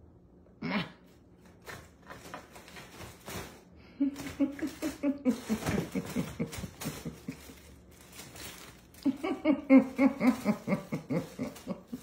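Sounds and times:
person laughing: 3.8s - 8.0s, 8.9s - 12.0s.

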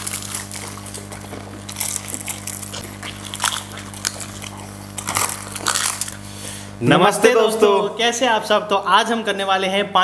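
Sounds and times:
crisp shells crunching while chewed: 0.0s - 6.4s
wet mouth sounds: 0.0s - 6.8s
steady low hum: 0.0s - 10.0s.

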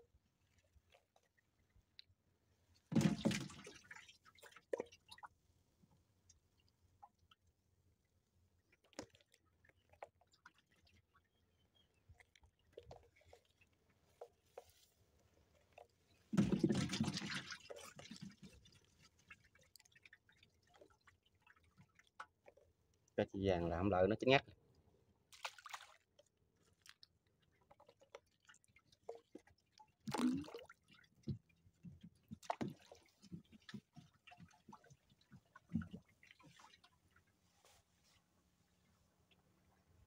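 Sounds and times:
small water drips: 0.0s - 2.9s, 3.5s - 40.0s
water splashing: 15.7s - 22.6s, 25.3s - 26.0s, 27.7s - 31.3s.

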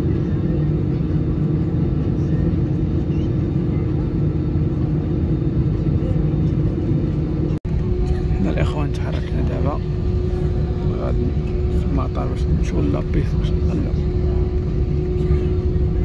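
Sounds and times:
aircraft engines rumbling: 0.0s - 16.0s
steady hum: 3.8s - 16.0s.

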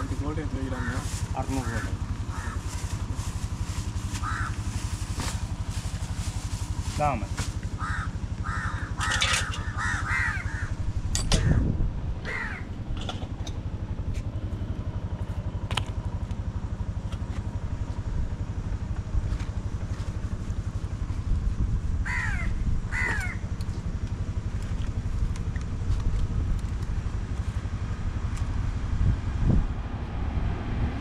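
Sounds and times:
low engine hum: 0.0s - 31.0s
harsh bird calls: 0.7s - 2.7s, 4.2s - 4.6s, 7.8s - 10.8s, 12.2s - 12.7s.

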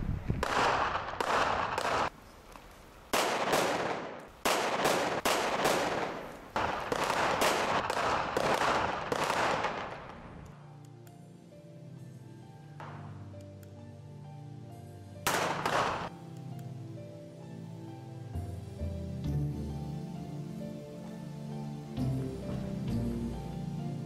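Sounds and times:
rapid gunfire with echo: 0.4s - 2.1s, 3.1s - 10.3s, 15.3s - 16.1s.

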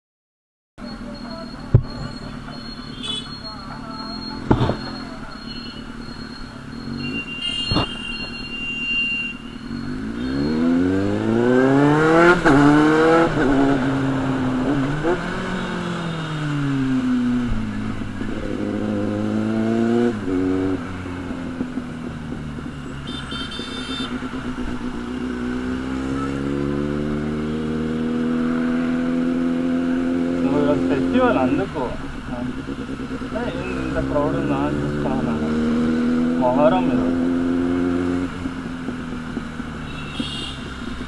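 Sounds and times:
motorcycle engine accelerating: 9.7s - 41.0s.

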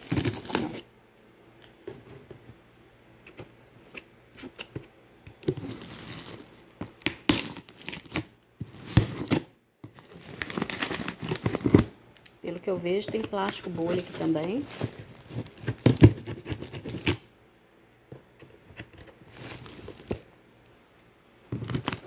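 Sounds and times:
plastic wrapping crinkling: 0.0s - 0.8s, 5.4s - 17.1s, 21.6s - 22.0s.

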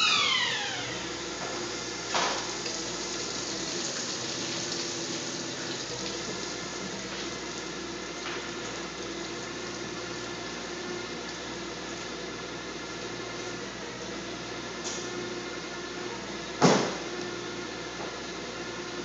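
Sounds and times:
wine press rushing hiss: 0.0s - 13.8s.

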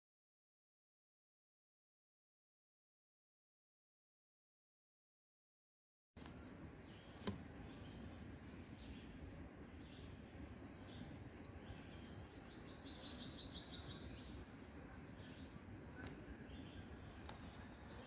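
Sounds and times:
faint low background hum: 6.2s - 18.0s
songbird high trill: 9.8s - 18.0s.

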